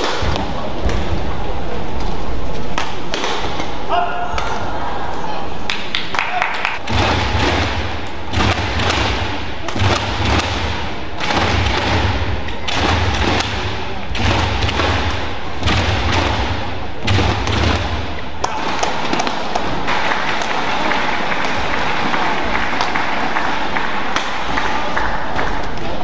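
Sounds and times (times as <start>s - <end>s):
crowd voices in hall: 0.0s - 26.0s
racket striking shuttlecock: 2.7s - 4.6s, 6.8s - 20.0s.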